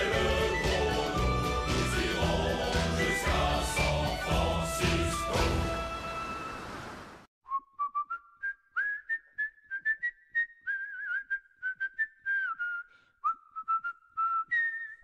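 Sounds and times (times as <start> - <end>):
choral song: 0.0 - 6.5
whistled melody: 0.0 - 6.6, 7.4 - 15.0.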